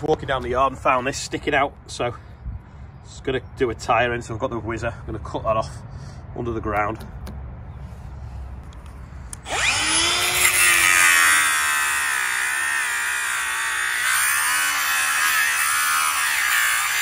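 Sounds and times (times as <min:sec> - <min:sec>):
angle grinder whining: 0:09.3 - 0:17.0.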